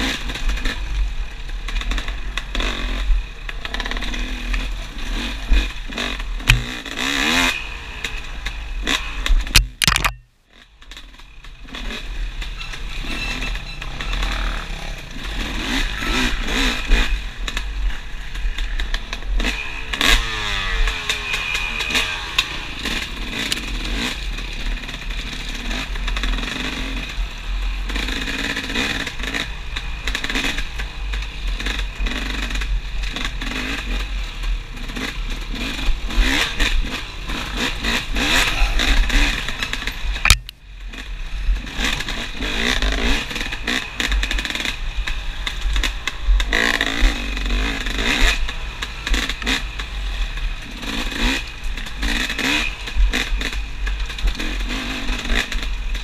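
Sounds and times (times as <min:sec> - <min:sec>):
bike and brush clatter and scraping: 0:00.0 - 0:56.0
dirt bike engine revving: 0:00.0 - 0:56.0
sharp click: 0:06.4 - 0:06.8, 0:09.2 - 0:10.3, 0:40.2 - 0:40.6.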